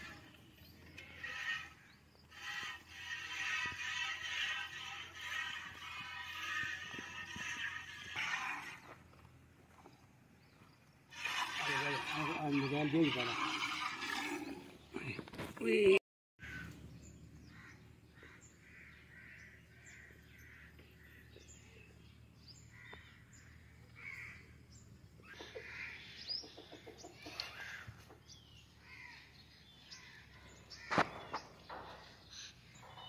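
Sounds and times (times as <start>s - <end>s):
faint bird calls and chirps: 16.5s - 33.0s
chicken clucking: 26.4s - 28.1s.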